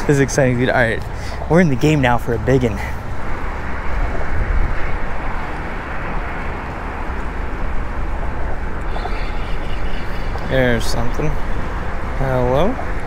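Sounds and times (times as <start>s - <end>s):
low rumbling outdoor noise: 0.0s - 13.0s.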